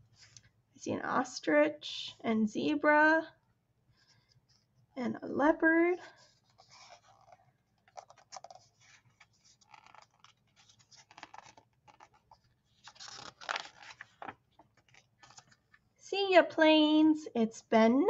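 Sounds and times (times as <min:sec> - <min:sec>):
book page turning: 0:06.1 - 0:15.8.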